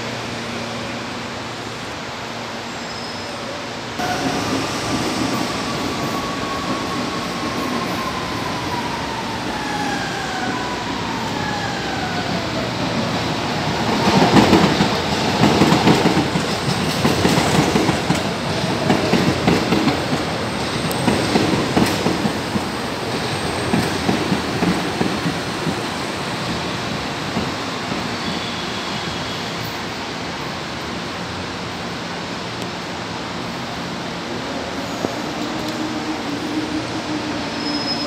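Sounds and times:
electric train whine: 0.0s - 38.0s
train wheels clattering on rail joints: 14.1s - 26.6s.

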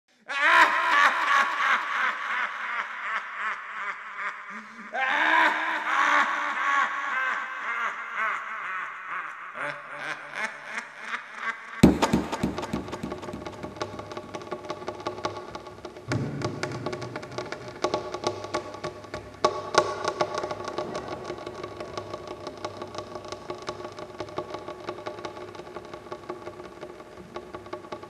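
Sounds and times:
man laughing heartily: 0.3s - 12.4s
sudden hit: 11.8s - 23.0s
music: 11.8s - 28.0s.

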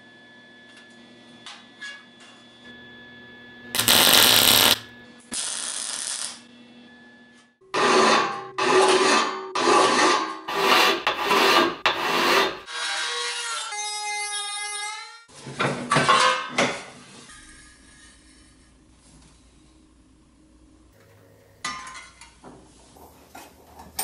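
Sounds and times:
rotary tool grinding whine: 3.8s - 4.8s
welding burst: 3.8s - 6.4s
file scraping steel: 7.8s - 14.1s.

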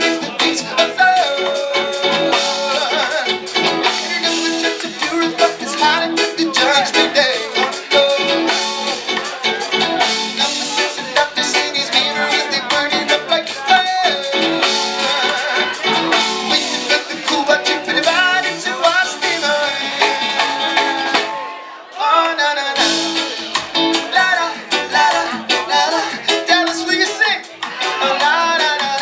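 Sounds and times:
drum kit: 0.0s - 21.6s, 22.8s - 29.0s
electric guitar: 0.0s - 21.6s, 22.7s - 29.0s
man singing: 0.0s - 29.0s.

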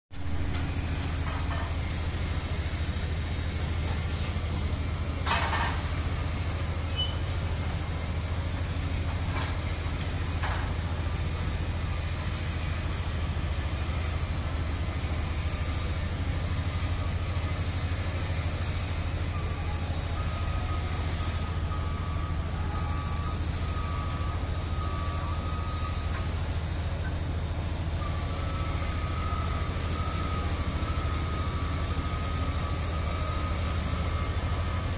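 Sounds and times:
heavy machinery engine drone: 0.1s - 34.9s
high beeping tone: 0.2s - 10.0s.

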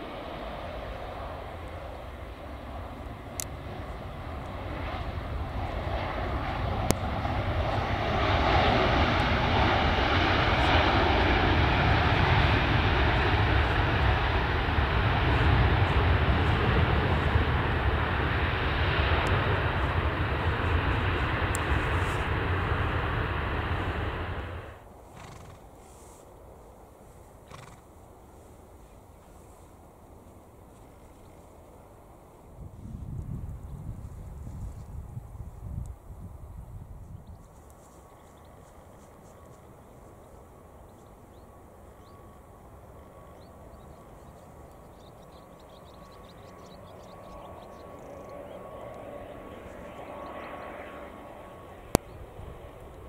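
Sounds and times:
jet engines roaring: 0.0s - 25.5s, 38.0s - 53.0s
distant turboprop drone: 0.0s - 53.0s.

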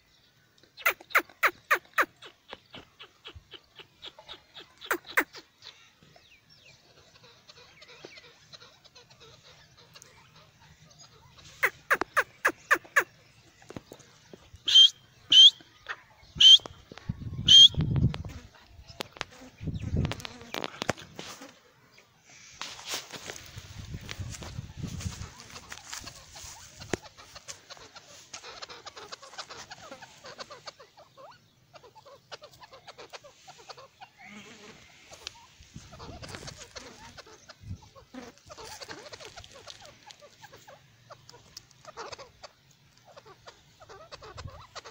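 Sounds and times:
bird clucking and chirping: 0.0s - 44.9s
francolin calling: 0.8s - 13.6s, 14.5s - 18.1s.

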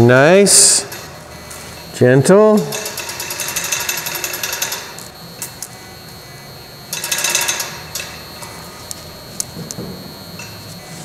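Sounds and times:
chain hoist clicking: 2.6s - 5.0s.

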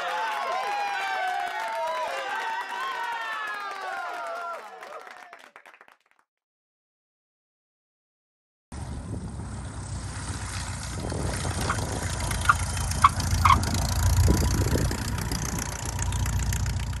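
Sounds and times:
propeller airplane engine droning: 8.8s - 17.0s.

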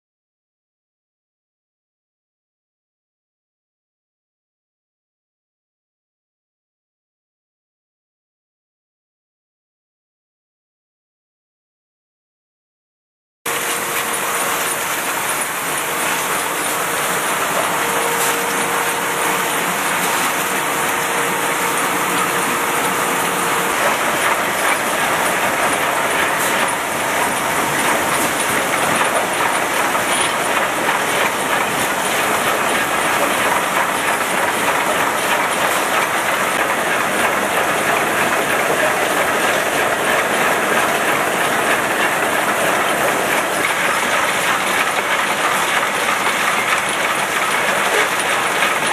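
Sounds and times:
machine clattering: 13.5s - 48.9s.

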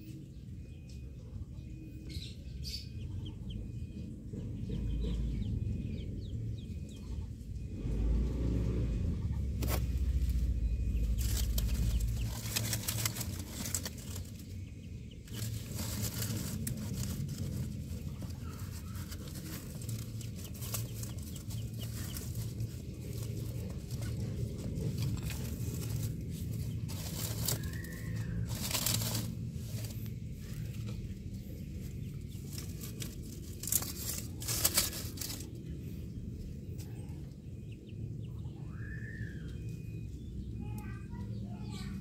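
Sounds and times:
low rumble of handling noise: 0.0s - 42.0s
dry leaves crackling and rustling: 9.5s - 35.8s.

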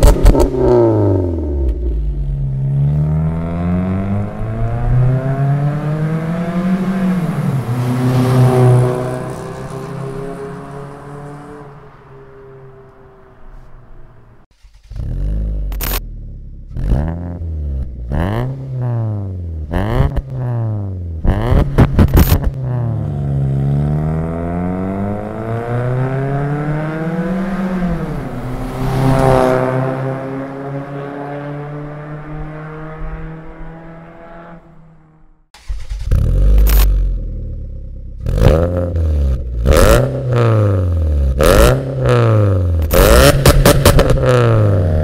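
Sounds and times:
exhaust cracks: 0.0s - 2.8s, 7.6s - 19.0s, 19.6s - 23.5s, 35.5s - 40.2s, 42.8s - 45.0s
car accelerating and driving past: 0.0s - 15.4s, 22.5s - 36.9s
car engine revving: 0.0s - 45.0s.

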